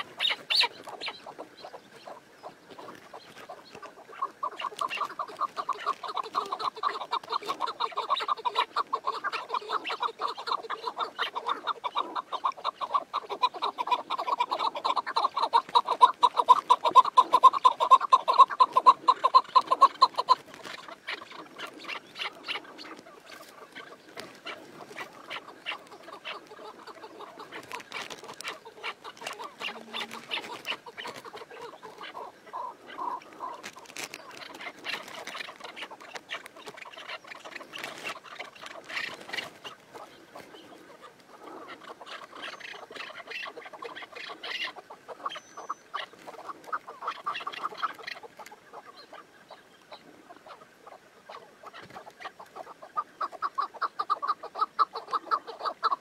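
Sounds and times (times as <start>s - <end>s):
partridge clucking: 2.7s - 40.1s.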